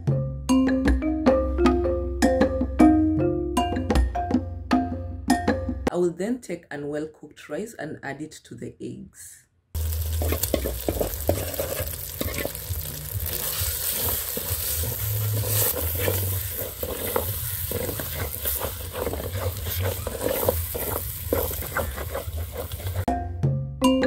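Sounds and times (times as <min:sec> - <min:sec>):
music with mallet notes: 0:00.0 - 0:05.9, 0:23.1 - 0:24.0
food sizzling: 0:09.8 - 0:23.1
wooden spoon scraping pot: 0:09.9 - 0:23.1.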